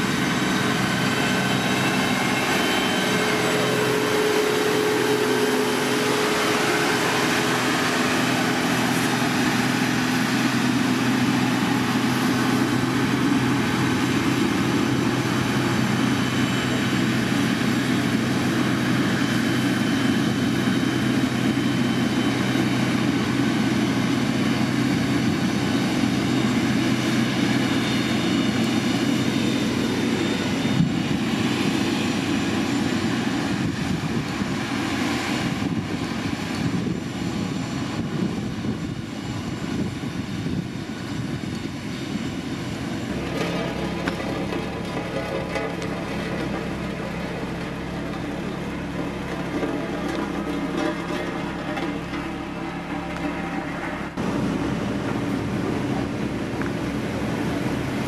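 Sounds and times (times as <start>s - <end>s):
heavy diesel engine droning: 0.0s - 58.0s.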